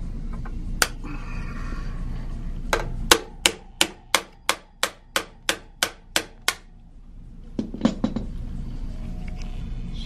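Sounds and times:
hammer striking metal: 0:02.8 - 0:06.7.

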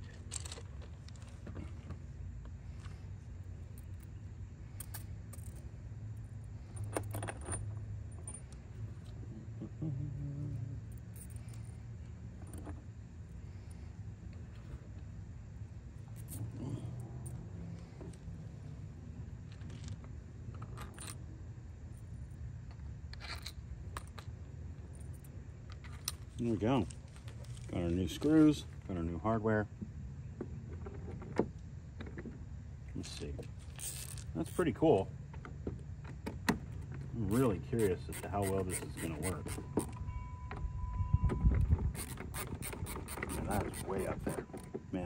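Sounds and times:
screws and washers clinking: 0:00.0 - 0:01.4, 0:33.4 - 0:34.7, 0:37.3 - 0:40.0, 0:41.9 - 0:44.7.

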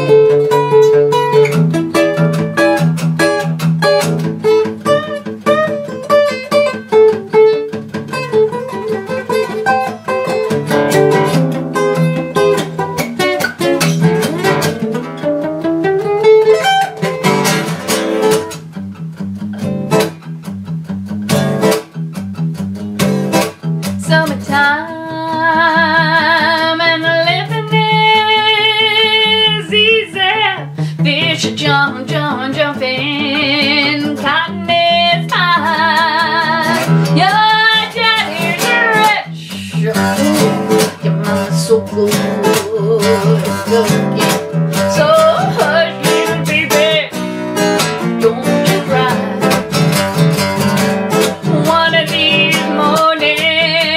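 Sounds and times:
acoustic guitar playing: 0:00.0 - 0:53.9
woman singing: 0:23.9 - 0:49.8, 0:51.2 - 0:53.9.

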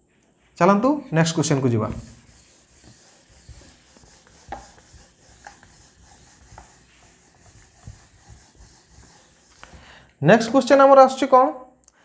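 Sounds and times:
whiteboard being wiped: 0:01.5 - 0:10.0
eraser knocking on board: 0:01.9 - 0:09.8.

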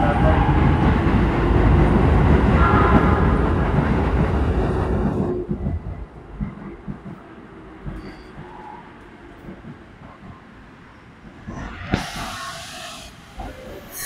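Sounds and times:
train rolling and wheel noise: 0:00.0 - 0:14.0
brief train whine: 0:10.9 - 0:14.0.

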